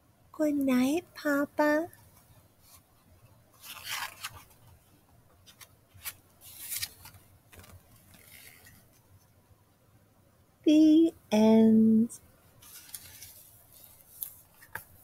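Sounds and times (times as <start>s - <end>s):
book pages turning: 3.6s - 9.1s, 12.6s - 15.0s.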